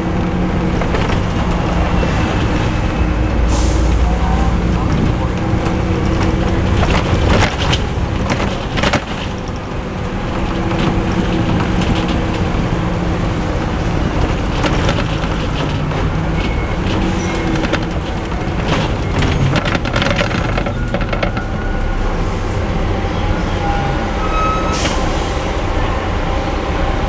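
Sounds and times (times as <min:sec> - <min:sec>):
bus body clicks and rattles: 0:00.0 - 0:02.6, 0:04.6 - 0:21.7
bus diesel engine running: 0:00.0 - 0:27.0.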